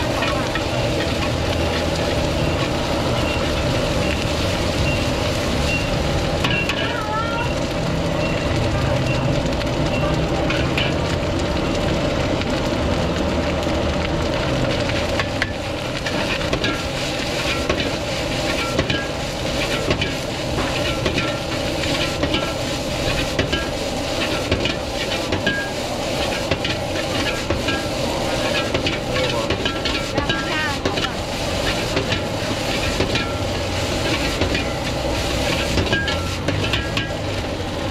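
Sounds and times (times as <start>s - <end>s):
rice sizzling in a wok: 0.0s - 37.9s
metal ladle scraping and clanking: 16.0s - 37.2s.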